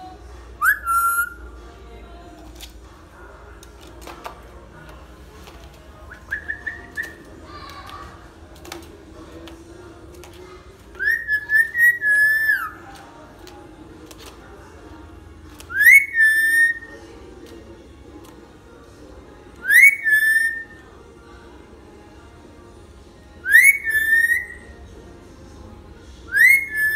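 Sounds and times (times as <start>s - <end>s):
parrot whistled calls: 0.6s - 1.4s, 11.0s - 12.8s, 15.7s - 16.9s, 19.6s - 20.8s, 23.4s - 24.6s, 26.3s - 26.9s.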